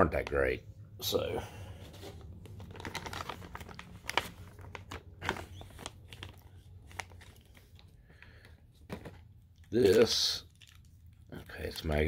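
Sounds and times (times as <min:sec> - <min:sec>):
plastic packaging crinkling: 0:02.2 - 0:08.4, 0:09.0 - 0:12.0.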